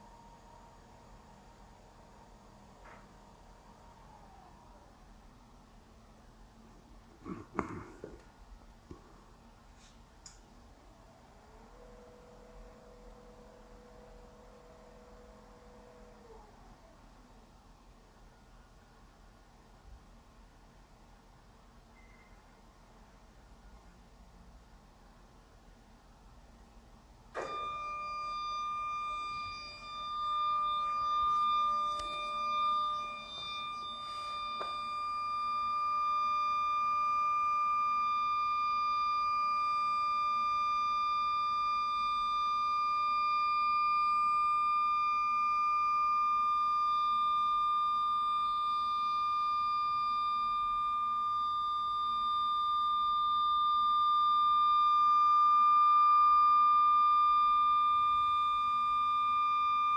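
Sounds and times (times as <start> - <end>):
stepper motor whine: 27.4 - 59.9.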